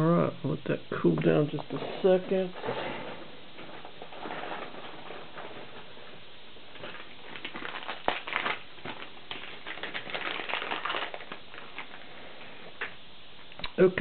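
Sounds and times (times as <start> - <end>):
small objects clicking and rustling: 6.7 - 12.1.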